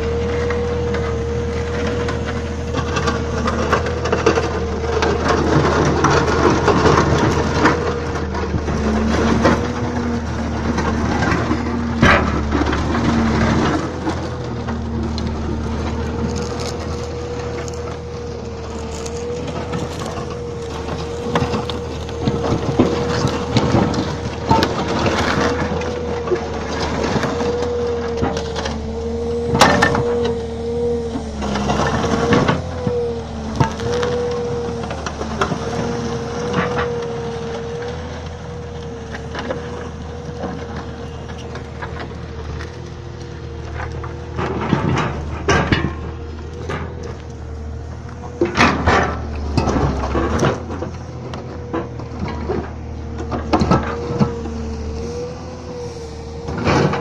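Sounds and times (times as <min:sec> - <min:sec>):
excavator engine and hydraulics whine: 0:00.0 - 0:57.0
steel frame grinding on gravel: 0:00.0 - 0:57.0.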